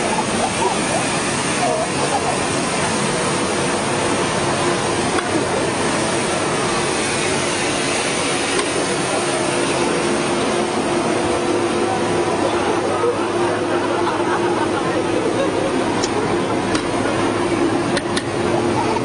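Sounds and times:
busy street noise: 0.0 - 19.0.

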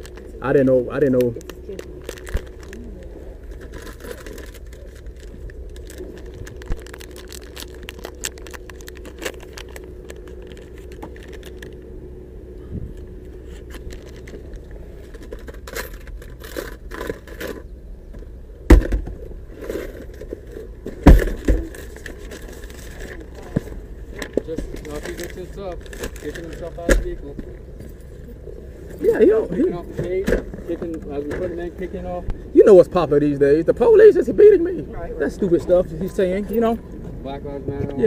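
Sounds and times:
steady low hum: 0.0 - 38.0
small clicks jingles and scrapes: 1.2 - 11.9, 13.0 - 17.7, 21.6 - 31.9.

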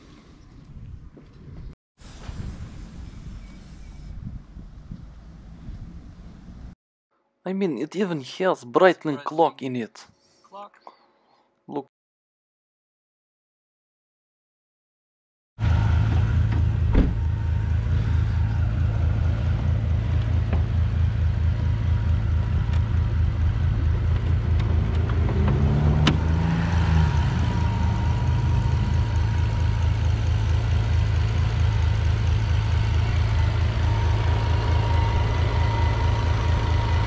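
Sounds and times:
car engine idling: 15.6 - 37.0.

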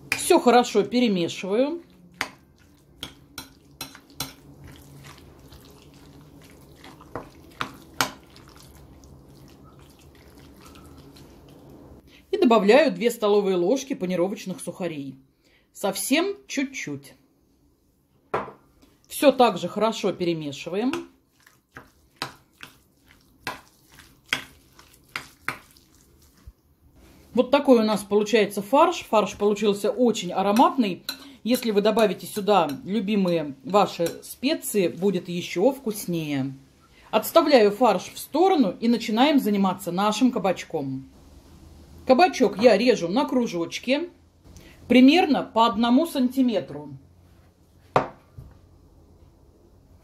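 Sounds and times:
wet squelching: 1.8 - 11.9, 21.2 - 26.6.

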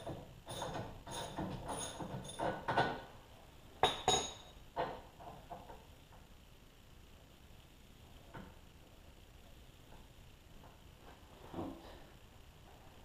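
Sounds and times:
metal clinks: 3.8 - 4.6.

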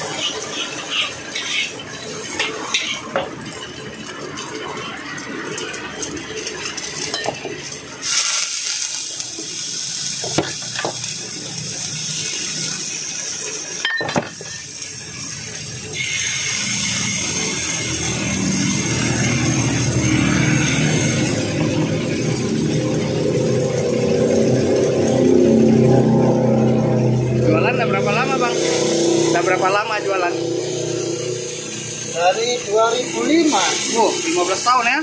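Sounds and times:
spatula scraping steel wok: 0.0 - 3.8, 14.3 - 27.4
frying sizzle: 0.0 - 35.0.

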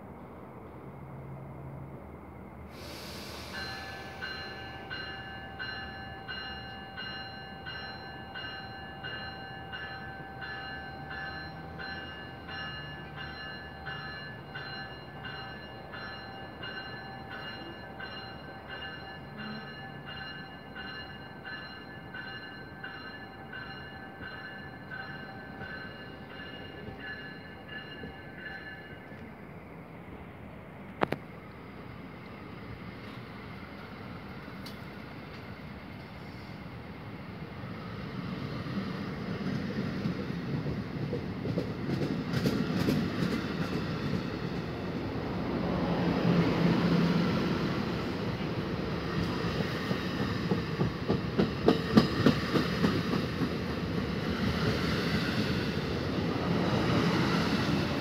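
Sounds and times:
low rumble of train cars: 0.0 - 58.0
pulsing high train whine: 0.0 - 58.0
air hiss: 2.7 - 4.5.

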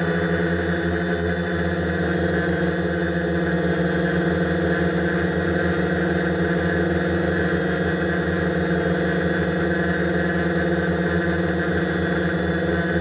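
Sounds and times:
drone propellers buzzing: 0.0 - 13.0.

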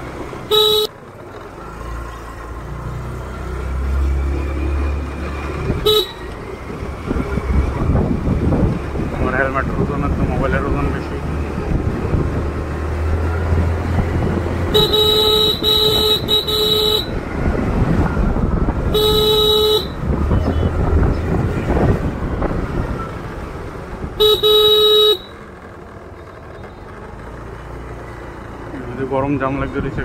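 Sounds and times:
scooter horn beeping: 0.5 - 0.9, 5.8 - 6.3, 14.7 - 17.2, 18.9 - 20.7, 24.2 - 25.5
wind on microphone: 7.0 - 9.9, 17.2 - 19.0, 20.0 - 23.1
scooter engine rumble: 13.3 - 29.0.

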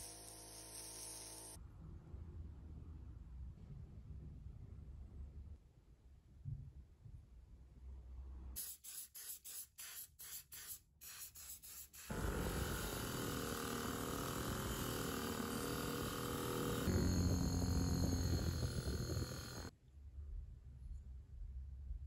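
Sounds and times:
short hissing bursts: 8.6 - 12.2
grinder motor hum: 12.1 - 19.7
wire wheel grinding metal: 12.1 - 19.7.

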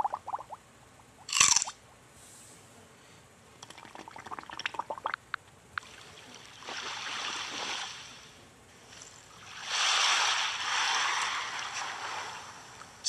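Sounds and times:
bubbly clicks and pops: 0.0 - 0.6, 3.6 - 5.4.

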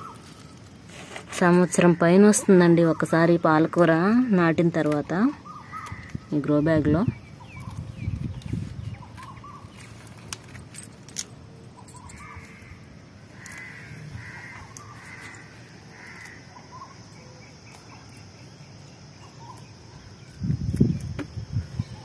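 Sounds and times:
bird calling: 0.0 - 0.6, 5.0 - 10.3, 11.5 - 22.0
leaves snapping and rustling: 4.8 - 6.6, 7.4 - 11.4, 19.4 - 21.5.

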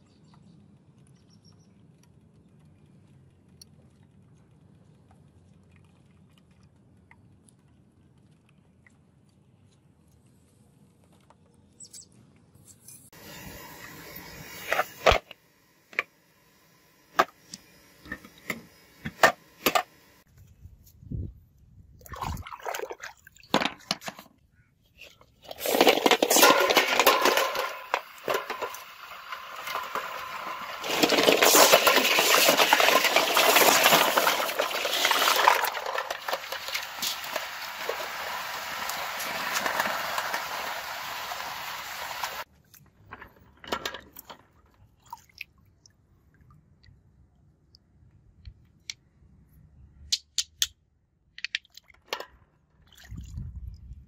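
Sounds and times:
water splashing and sloshing: 21.9 - 24.4, 44.1 - 47.0, 51.5 - 54.0.

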